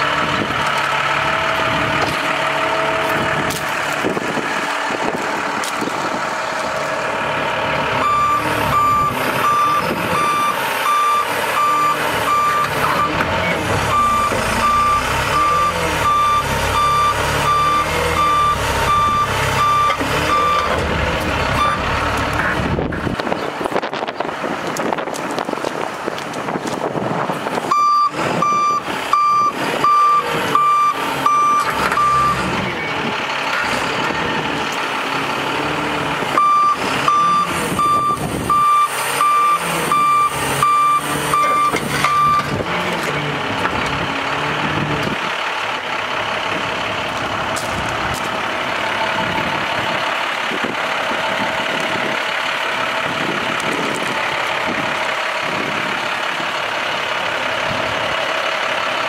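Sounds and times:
diesel engine running: 0.0 - 59.0
warning alarm beeping: 8.0 - 20.8, 21.5 - 21.9, 27.7 - 32.5, 36.4 - 42.6.

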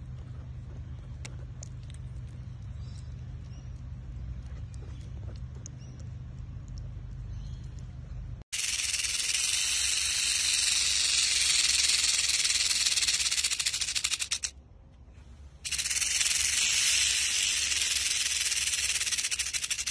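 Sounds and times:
rattlesnake tail rattling: 8.5 - 14.5, 15.6 - 19.9.

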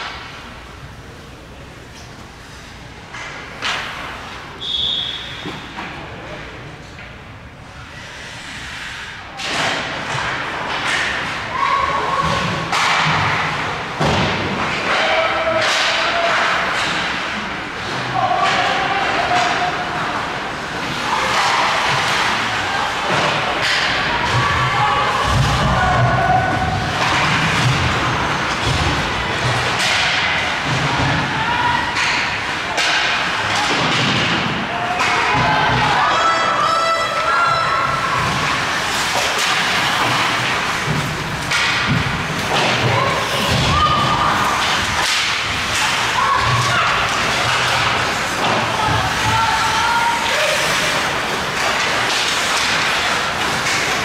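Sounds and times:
noisy wash of hockey game: 0.0 - 54.0
skates hissing on ice: 8.0 - 9.2.

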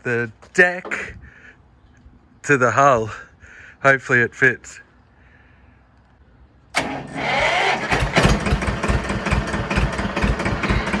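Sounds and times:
tractor engine chugging: 6.8 - 11.0.

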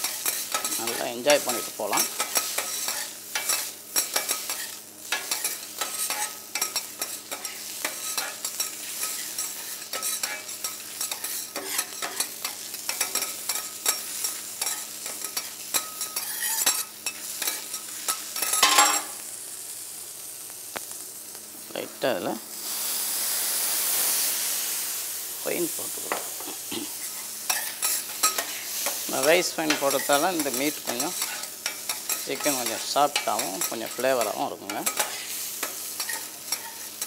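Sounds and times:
metal spatulas scraping a griddle: 0.0 - 19.0, 27.0 - 37.0
frying sizzle: 0.0 - 37.0.

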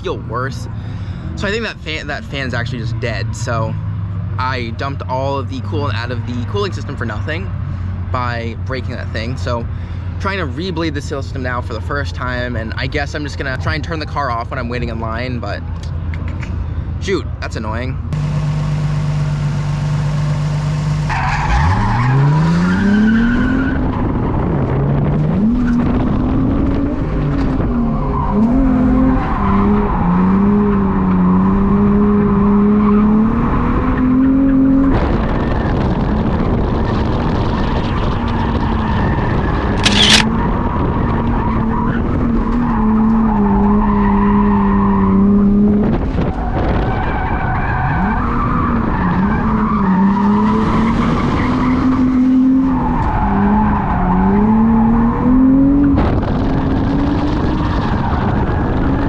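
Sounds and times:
car engine revving: 18.1 - 59.0
tires squealing and skidding: 20.7 - 59.0.

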